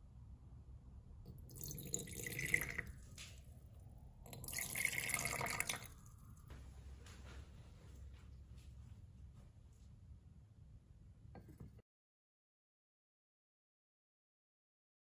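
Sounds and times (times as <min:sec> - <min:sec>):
liquid pouring into container: 0:01.3 - 0:03.5, 0:04.2 - 0:06.2.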